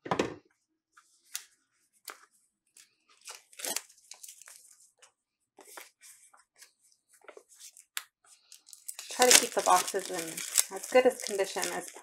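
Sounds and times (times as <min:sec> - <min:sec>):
shrink-wrap tearing and crinkling: 0:03.2 - 0:04.6, 0:08.5 - 0:12.0.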